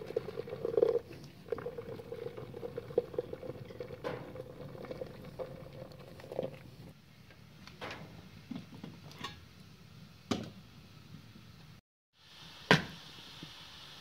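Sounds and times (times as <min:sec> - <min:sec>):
glass teapot clinking on kettle: 0:03.0 - 0:04.2
steady hiss: 0:10.9 - 0:14.0.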